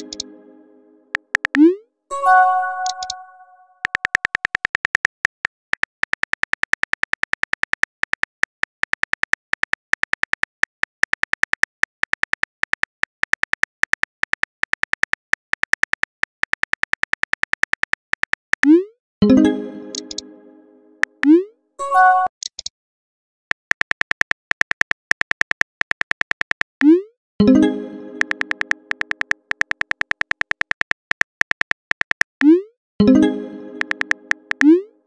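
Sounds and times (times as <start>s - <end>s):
message sent chime: 0.0s - 1.1s, 2.1s - 3.7s, 19.2s - 21.0s, 27.4s - 29.2s, 33.0s - 34.9s
phone keyboard key clicks: 1.2s - 1.6s, 3.8s - 5.2s, 23.5s - 26.7s, 28.2s - 32.3s.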